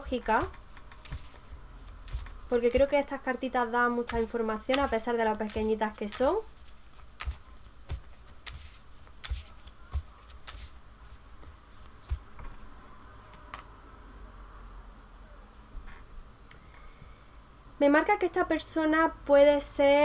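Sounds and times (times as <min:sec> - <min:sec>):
cards shuffled by hand: 0:00.4 - 0:03.0, 0:03.8 - 0:13.7.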